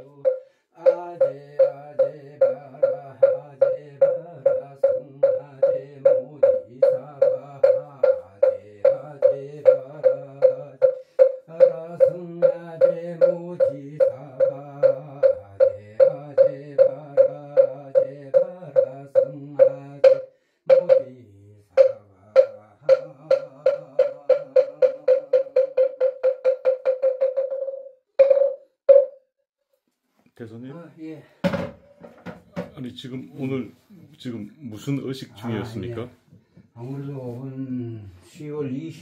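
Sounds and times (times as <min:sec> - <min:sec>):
wooden fish knocks: 0:09.7 - 0:12.2, 0:21.8 - 0:29.1.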